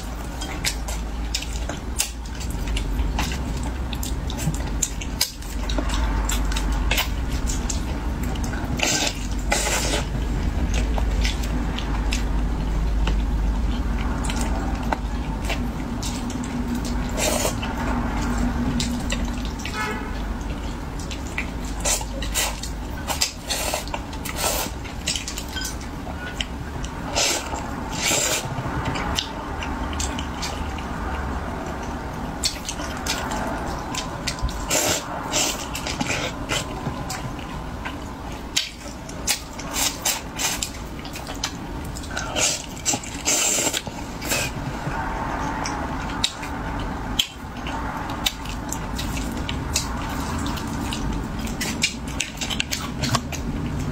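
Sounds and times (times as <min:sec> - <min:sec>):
lip smacks and clicks: 0:00.0 - 0:53.9
wet slurping and chewing: 0:00.0 - 0:53.9
sucking slurp: 0:27.0 - 0:28.8, 0:42.0 - 0:45.7.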